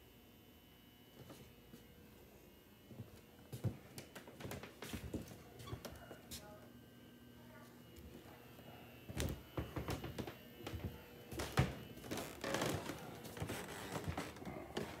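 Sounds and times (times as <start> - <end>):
footsteps on hardwood floor: 2.9 - 6.5, 9.1 - 15.0.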